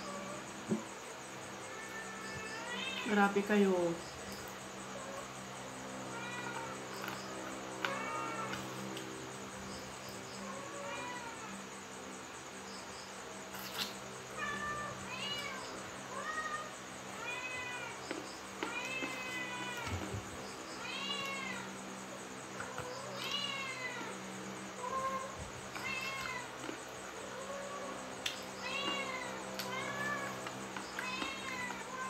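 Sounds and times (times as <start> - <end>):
cat meowing: 31.0 - 32.0.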